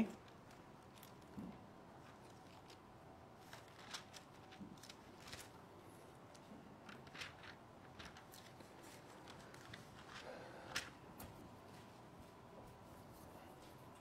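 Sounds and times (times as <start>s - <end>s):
pages rustling: 2.0s - 11.4s.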